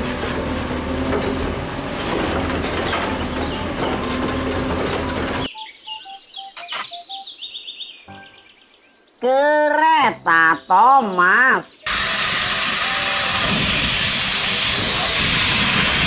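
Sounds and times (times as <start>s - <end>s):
garbage truck engine and hydraulics: 0.0s - 5.5s, 11.9s - 16.0s
chirping beeping sound effects: 5.5s - 8.7s.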